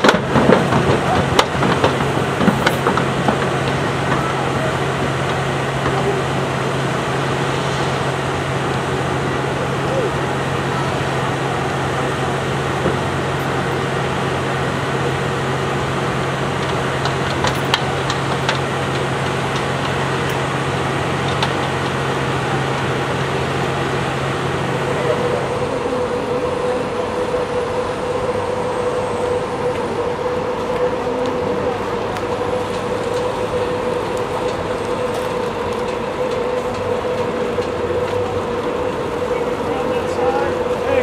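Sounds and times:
engine humming: 0:00.0 - 0:41.0
outdoor background noise: 0:00.0 - 0:41.0
steady higher drone: 0:00.0 - 0:41.0.

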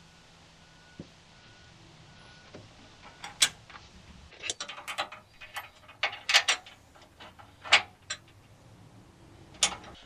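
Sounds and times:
metal clicks and knocks: 0:04.4 - 0:08.5, 0:09.5 - 0:10.0.

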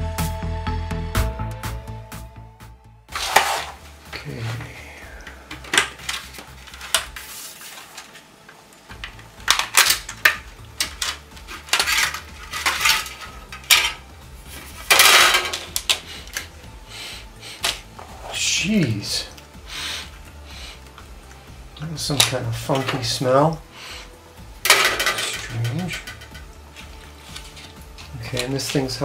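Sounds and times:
metal scraping: 0:03.1 - 0:08.3, 0:08.9 - 0:16.5, 0:22.1 - 0:29.0
sheet metal clinking: 0:08.9 - 0:14.1, 0:14.7 - 0:16.4, 0:24.6 - 0:26.5.

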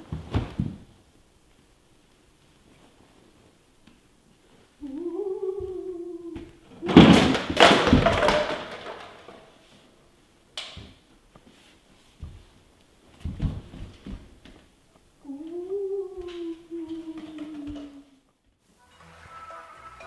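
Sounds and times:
body falling to floor: 0:00.0 - 0:01.0, 0:06.4 - 0:09.4, 0:12.2 - 0:14.7
person moaning: 0:04.8 - 0:06.6, 0:15.2 - 0:18.2.

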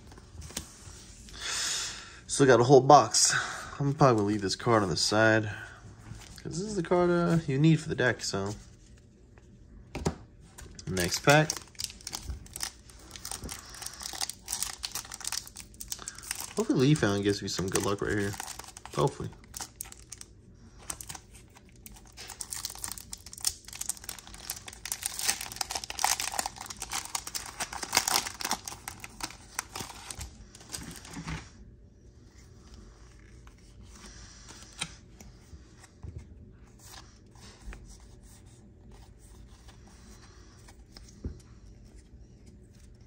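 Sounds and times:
foil wrapper crinkling and tearing: 0:10.8 - 0:31.2.

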